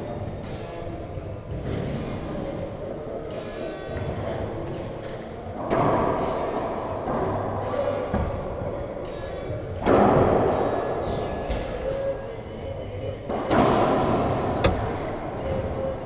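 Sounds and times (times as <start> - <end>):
racquet hitting ball with echo: 13.3 - 16.0.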